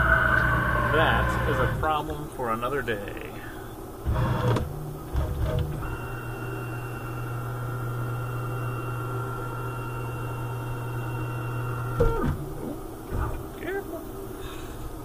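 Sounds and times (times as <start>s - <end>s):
falling squeal: 0.0s - 1.7s, 5.8s - 12.2s
motor humming with high whine: 0.0s - 15.0s.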